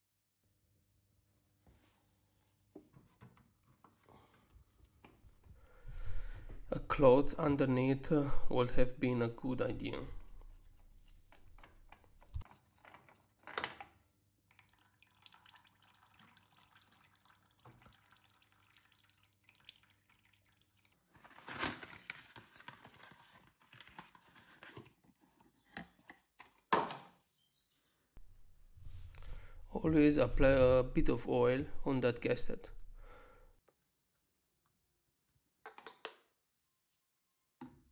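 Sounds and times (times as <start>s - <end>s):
oil dripping: 14.5s - 21.0s.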